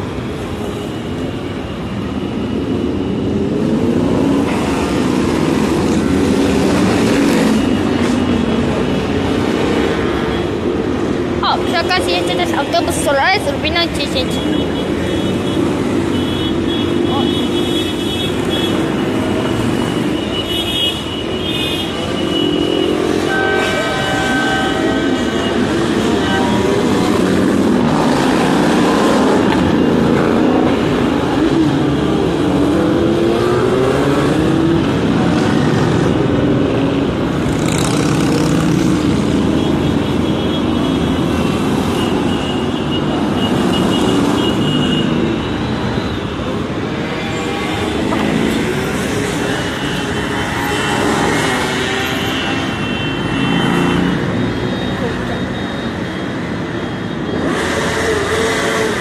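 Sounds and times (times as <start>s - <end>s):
street traffic: 0.0s - 59.0s
motorcycles revving past: 37.4s - 39.3s.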